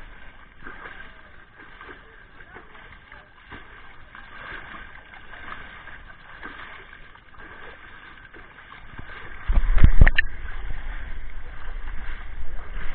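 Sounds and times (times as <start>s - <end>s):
water splashing and pouring: 0.0s - 12.9s
low rumbling on microphone: 7.4s - 12.9s.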